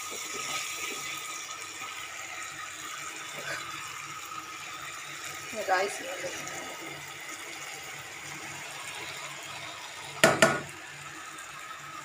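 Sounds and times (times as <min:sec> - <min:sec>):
utensil knocking against pan: 0:10.2 - 0:10.7.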